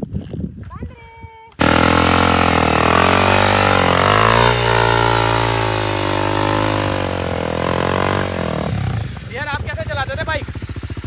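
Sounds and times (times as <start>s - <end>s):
rear wheel spinning in sand: 1.6s - 8.3s
dirt bike engine revving hard: 1.6s - 10.0s.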